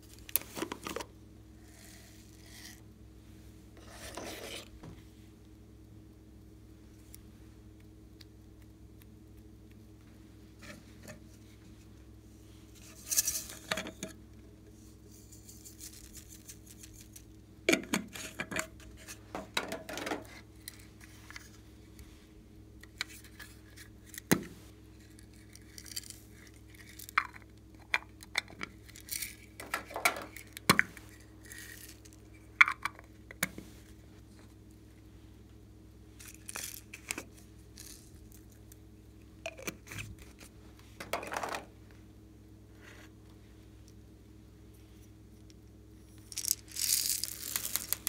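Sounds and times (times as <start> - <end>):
steady low hum: 0.0 - 48.0
plastic packaging clicks and crinkles: 46.2 - 48.0.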